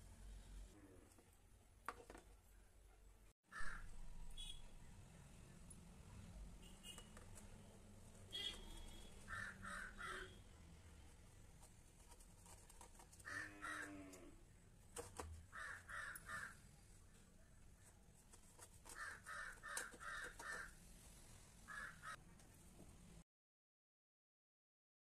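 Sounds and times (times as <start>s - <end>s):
crows cawing: 3.5s - 3.9s, 9.2s - 10.4s, 13.2s - 14.3s, 15.5s - 16.7s, 18.9s - 20.8s, 21.7s - 22.2s.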